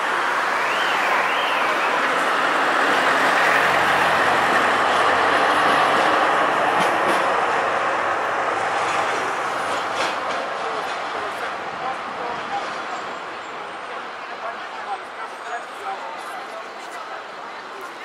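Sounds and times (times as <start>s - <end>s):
tram wheels rumbling on rails: 0.0s - 18.0s.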